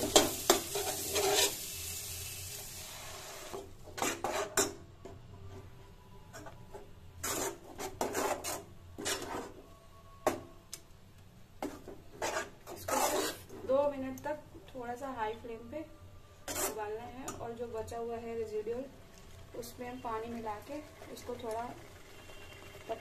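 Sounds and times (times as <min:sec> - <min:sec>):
spatula scraping and stirring: 0:00.1 - 0:01.7, 0:03.2 - 0:04.7, 0:07.2 - 0:09.7, 0:11.6 - 0:13.7, 0:16.4 - 0:17.0.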